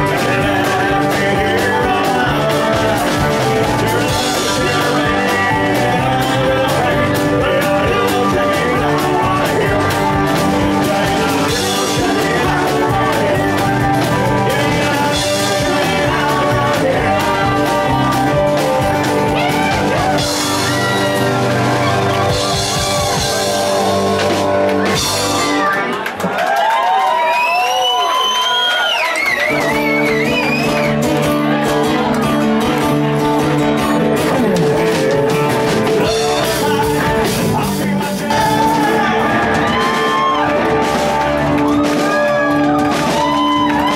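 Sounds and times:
drum kit with cymbals: 0.0s - 25.8s, 29.6s - 43.9s
person singing: 0.0s - 25.8s, 29.4s - 43.9s
electric bass: 0.0s - 25.9s, 29.5s - 43.9s
guitars: 0.0s - 26.2s, 28.2s - 43.9s
blues rock band playing: 0.0s - 26.4s, 29.2s - 43.9s.

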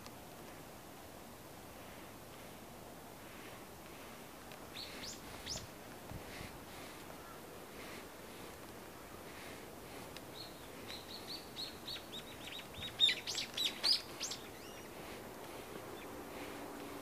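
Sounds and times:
songbird singing: 4.6s - 5.8s, 8.8s - 17.0s.

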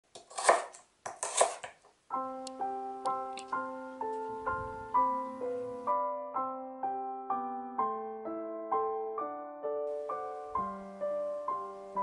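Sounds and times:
knife cutting celery on wooden board: 0.1s - 1.8s
solo piano melody: 2.1s - 12.0s.

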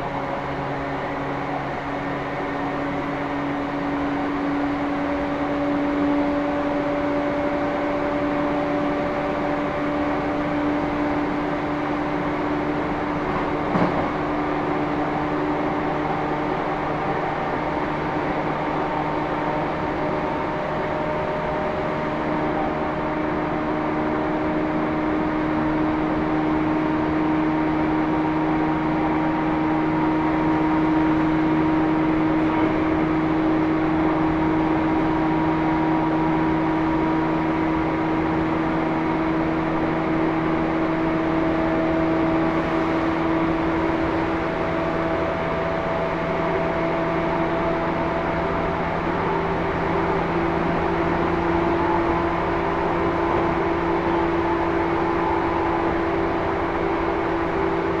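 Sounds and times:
traction motor whine: 0.0s - 58.0s
train wheels rumbling on rails: 13.3s - 14.8s.

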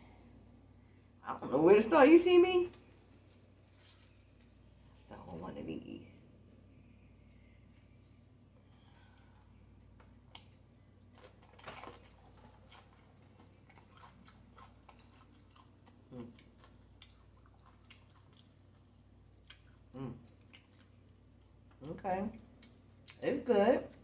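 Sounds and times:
chewing and crunching chips: 10.1s - 23.3s.

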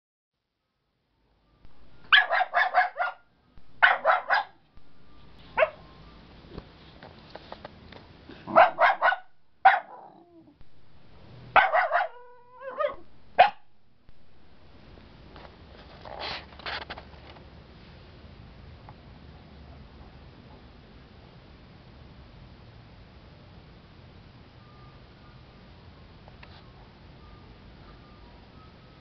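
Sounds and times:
dog barking angrily: 2.1s - 3.2s, 3.8s - 4.6s, 5.6s - 5.8s, 8.5s - 10.3s, 11.5s - 13.7s
dog whining: 5.4s - 6.2s, 9.7s - 10.6s, 11.6s - 13.1s.

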